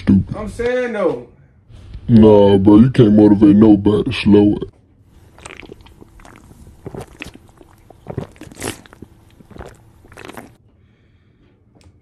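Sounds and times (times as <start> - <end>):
person gulping from plastic bottle: 5.2 - 10.6.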